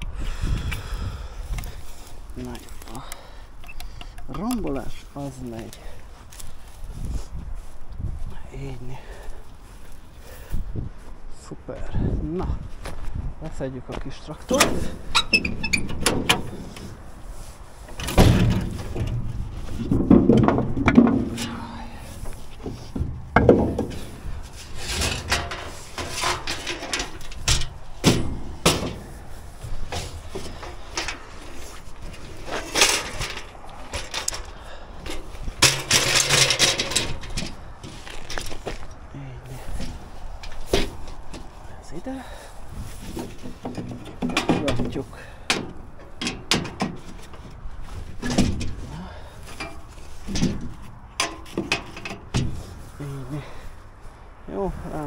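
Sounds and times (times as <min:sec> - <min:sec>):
equipment knocks and thumps: 0:17.9 - 0:21.7, 0:22.6 - 0:31.3, 0:43.0 - 0:52.8.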